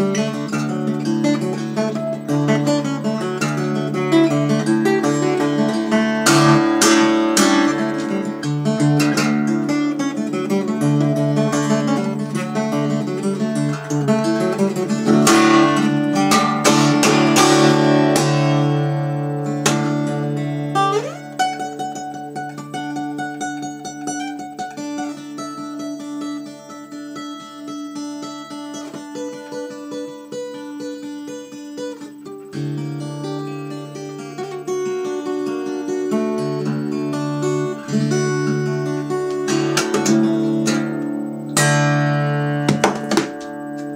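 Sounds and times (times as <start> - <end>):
acoustic guitar playing: 0.0 - 43.9.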